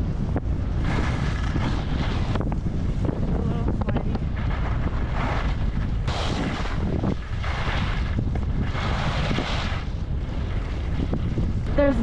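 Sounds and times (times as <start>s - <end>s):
wind rumbling on microphone: 0.0s - 12.0s
skis hissing over snow: 0.8s - 2.9s, 7.5s - 9.9s.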